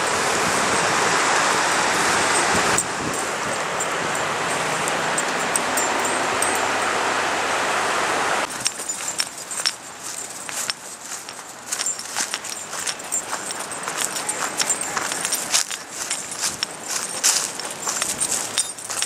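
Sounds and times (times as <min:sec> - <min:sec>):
creek water rushing: 0:00.0 - 0:19.0
footsteps on dry leaves: 0:08.5 - 0:19.0.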